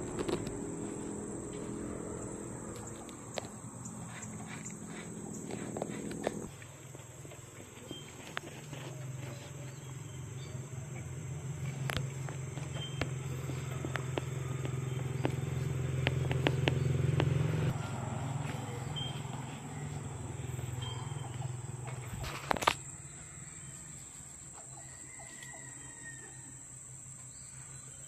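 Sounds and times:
cat purring: 0:00.0 - 0:06.6
cat licking fur: 0:04.0 - 0:06.5.

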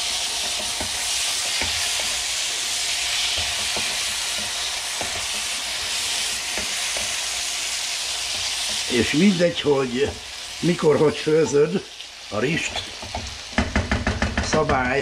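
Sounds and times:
food sizzling in a pot: 0:00.0 - 0:15.0
spoon knocking and scraping pot: 0:00.4 - 0:02.3, 0:03.2 - 0:07.2, 0:12.6 - 0:14.8.

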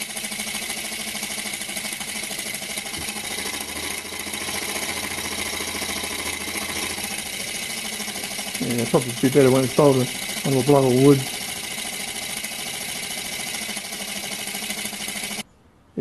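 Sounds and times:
model steam engine clattering: 0:00.0 - 0:15.4.

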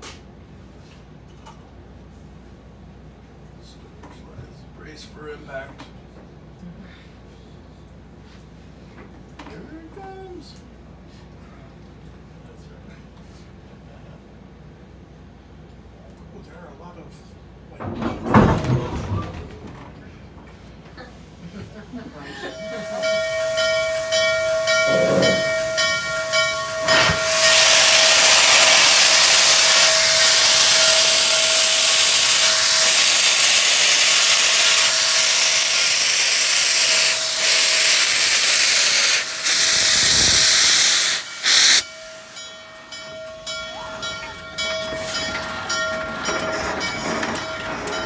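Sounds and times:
steady whine: 0:22.4 - 0:48.0
steam hissing: 0:22.5 - 0:48.0.

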